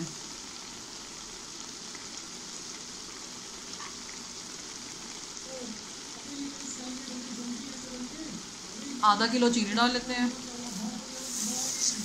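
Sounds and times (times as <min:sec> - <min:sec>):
carrots sizzling in a pot: 0:00.0 - 0:12.0.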